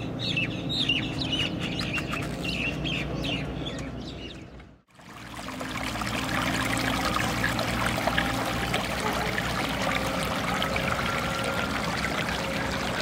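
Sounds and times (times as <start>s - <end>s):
birds chirping: 0.0s - 4.8s
water trickling over rocks: 4.9s - 13.0s.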